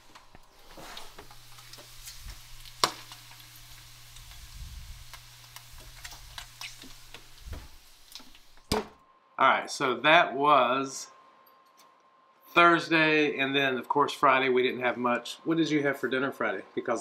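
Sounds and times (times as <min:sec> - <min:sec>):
bacon sizzling and popping: 0:00.0 - 0:09.0
oven hum: 0:00.0 - 0:09.0.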